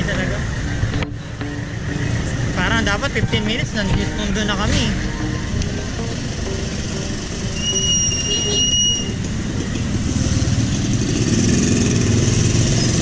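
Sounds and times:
street traffic rumble: 0.0 - 13.0
high-pitched squeal: 6.2 - 9.3.

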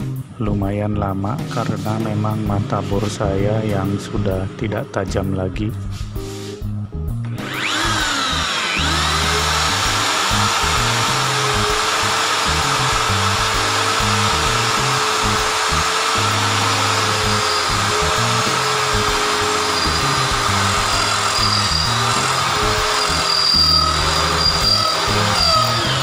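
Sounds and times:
drill motor whine: 7.3 - 26.0
drill bit grinding into steel: 7.4 - 26.0.

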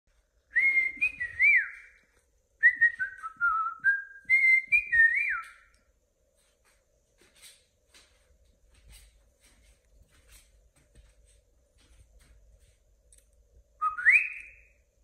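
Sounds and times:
cockatiel whistling a tune: 2.6 - 5.6, 13.8 - 14.7.

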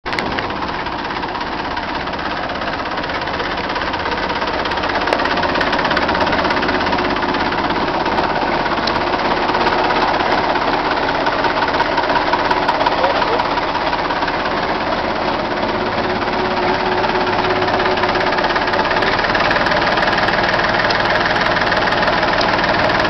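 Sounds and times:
tractor diesel engine idling: 0.0 - 23.0.

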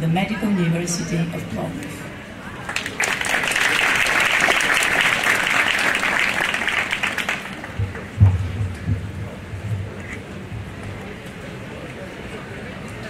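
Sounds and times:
audience applauding: 2.6 - 8.1
low thumps: 7.7 - 11.2.

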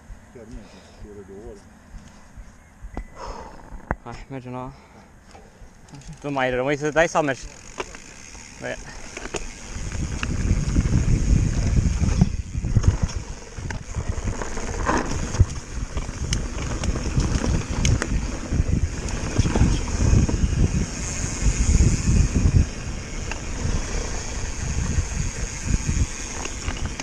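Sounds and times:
bike clicking and rattling: 5.2 - 27.0
tyres rumbling over dirt trail: 5.9 - 27.0
wind buffeting microphone: 8.2 - 27.0.

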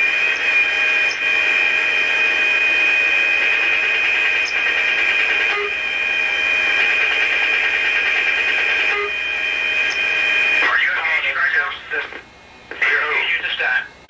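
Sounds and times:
high-pitched whine: 0.0 - 12.1
intercom hiss: 10.6 - 14.0.

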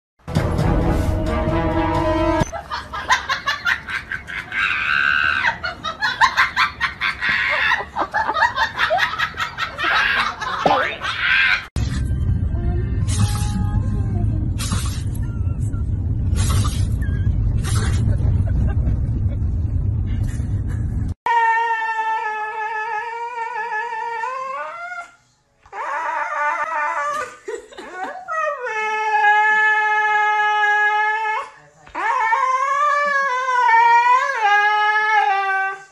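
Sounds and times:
music: 0.2 - 2.5
husky yelping and howling: 21.3 - 27.4, 28.0 - 35.9.

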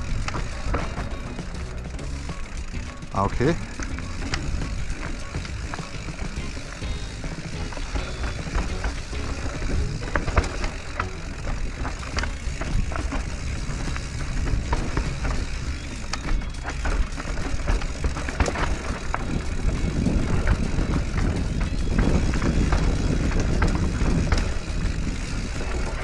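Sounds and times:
bike clicks and rattles: 0.0 - 26.0
tyres on dirt: 0.0 - 26.0
wind rumble on microphone: 17.4 - 26.0.

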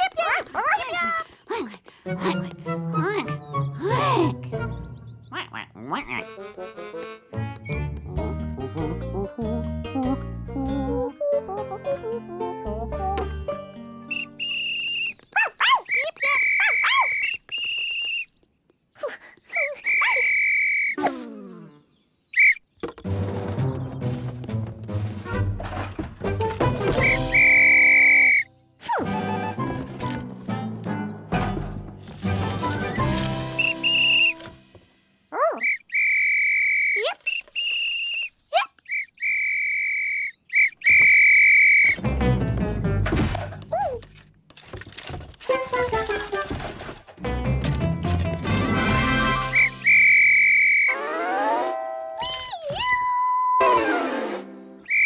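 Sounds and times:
shrill toy whistle toots: 14.1 - 15.2, 15.9 - 18.3, 19.8 - 21.0, 22.4 - 22.6, 27.0 - 28.5, 33.6 - 34.4, 35.4 - 42.0, 49.2 - 51.0, 52.2 - 53.7.

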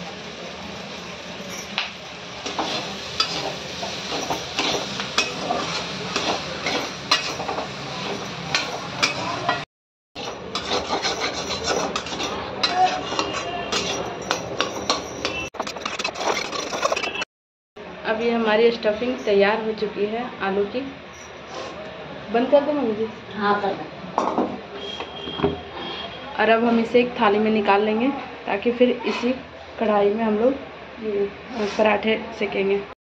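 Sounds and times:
metal spatula scraping a pan: 2.4 - 9.4, 10.2 - 17.3, 25.7 - 26.2, 29.0 - 29.4.

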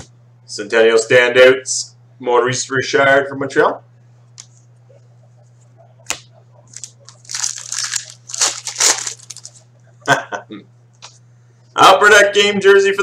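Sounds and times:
foil wrapper tearing and crinkling: 6.7 - 9.6.

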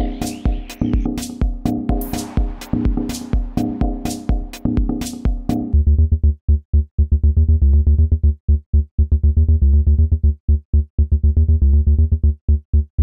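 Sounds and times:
electronic music with clipped synth: 0.0 - 6.4.

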